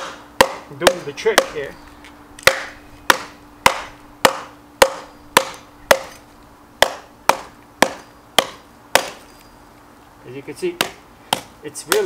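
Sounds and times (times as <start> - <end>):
hatchet chopping into a log: 0.0 - 1.6, 2.4 - 6.2, 6.8 - 9.2, 10.8 - 12.0.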